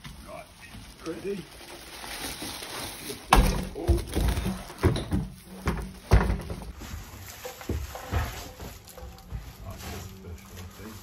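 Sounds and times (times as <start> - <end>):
thumps and knocks of heavy object: 3.3 - 9.8.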